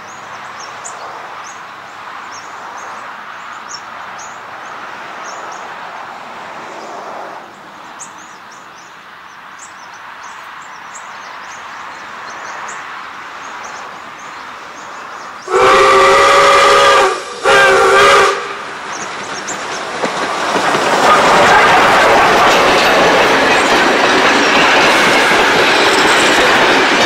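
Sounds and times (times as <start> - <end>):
small birds chirping: 0.0 - 5.7, 7.8 - 15.5, 18.9 - 19.8
train rumble: 11.4 - 27.0
steam locomotive whistle blasts: 15.4 - 18.7.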